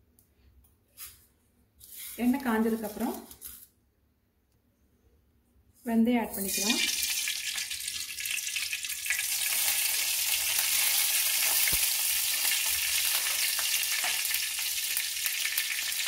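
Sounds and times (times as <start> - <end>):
seeds sizzling in hot oil: 6.3 - 16.0.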